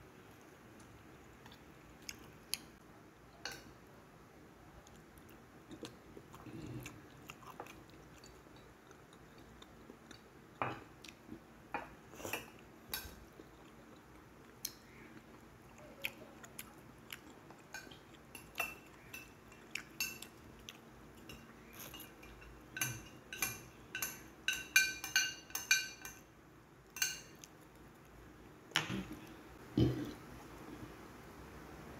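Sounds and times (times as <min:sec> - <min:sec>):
faint chewing: 0:00.3 - 0:02.8, 0:04.8 - 0:11.5, 0:12.1 - 0:22.3.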